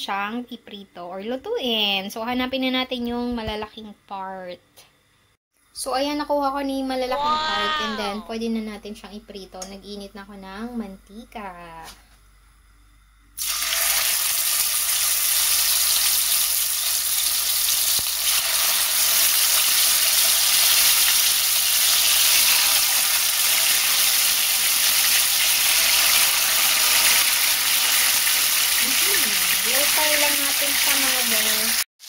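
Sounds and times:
chicken sizzling in oil: 13.4s - 31.9s.

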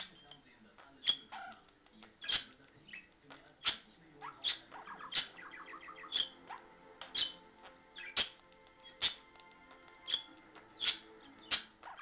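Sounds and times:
budgerigars chirping: 0.0s - 12.0s
soft chattering notes: 0.0s - 12.0s.

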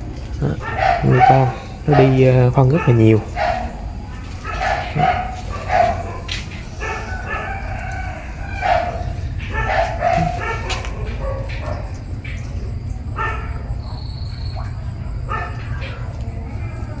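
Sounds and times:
roosters crowing: 3.0s - 11.8s.

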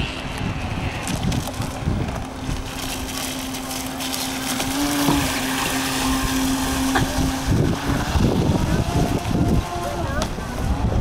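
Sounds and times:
water noise: 0.0s - 11.0s
wind noise: 0.0s - 11.0s
electric motor whine: 2.7s - 11.0s.

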